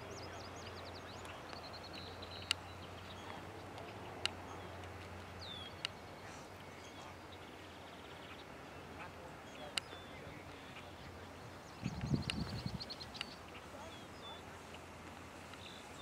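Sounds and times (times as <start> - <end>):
small birds chirping: 0.0 - 16.0
sharp ticks: 1.2 - 6.1, 11.9 - 13.6.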